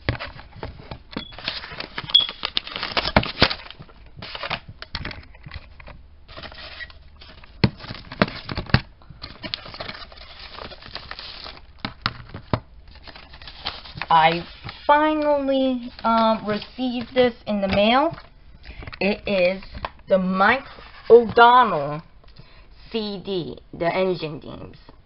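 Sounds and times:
paper packaging crinkling and tearing: 0:01.2 - 0:17.2.

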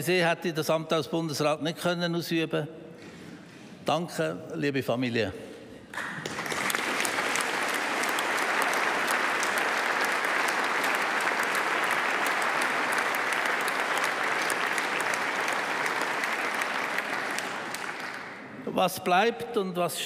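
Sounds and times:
audience applauding: 0:06.0 - 0:18.6.

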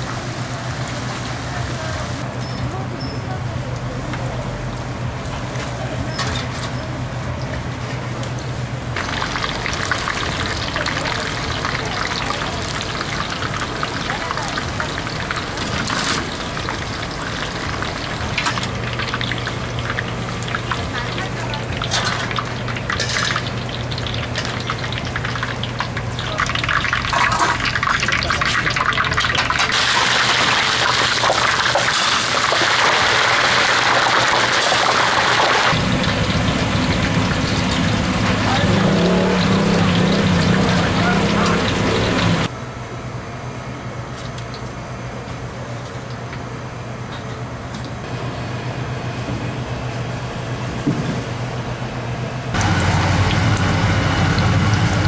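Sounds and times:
oil sizzling and crackling: 0:08.2 - 0:42.5, 0:52.5 - 0:55.0.

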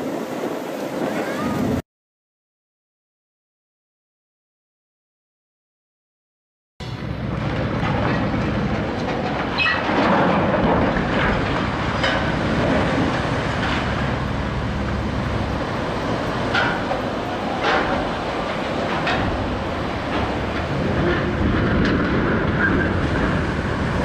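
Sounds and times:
churning water: 0:00.0 - 0:01.8, 0:06.8 - 0:24.0
ship hull sliding rumble: 0:06.8 - 0:24.0.

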